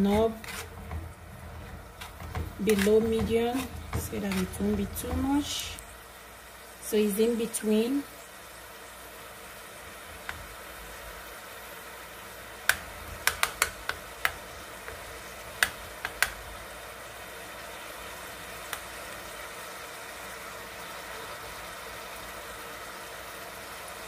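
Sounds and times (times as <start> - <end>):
food sizzling in a pot: 0.0 - 24.0
spoon tapping metal pot: 12.7 - 15.0.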